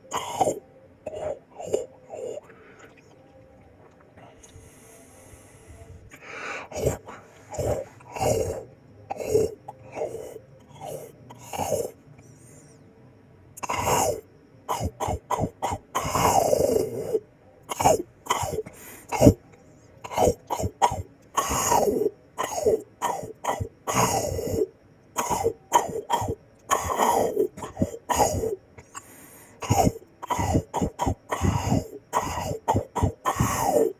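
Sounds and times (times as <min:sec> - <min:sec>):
throaty grunts: 0:06.6 - 0:12.0, 0:20.1 - 0:33.9.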